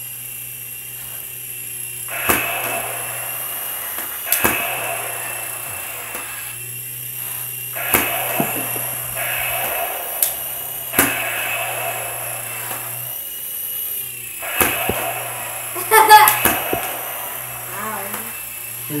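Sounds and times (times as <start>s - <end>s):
toy helicopter rotors whirring: 0.0s - 19.0s
sharp clicks: 4.0s - 4.8s.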